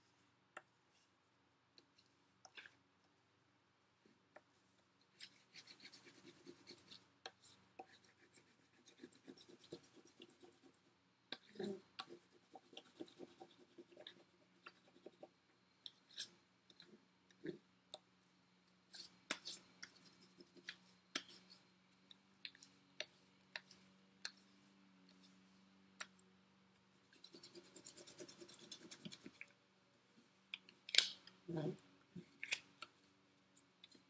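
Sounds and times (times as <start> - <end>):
faint low hum: 0.0 - 34.0
crayon scratching on paper: 5.1 - 15.3, 27.1 - 29.4.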